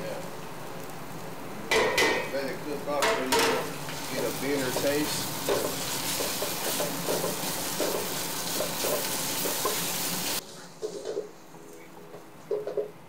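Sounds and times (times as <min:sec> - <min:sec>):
onions sizzling in oil: 0:00.0 - 0:11.4
spatula stirring in pot: 0:03.9 - 0:11.3.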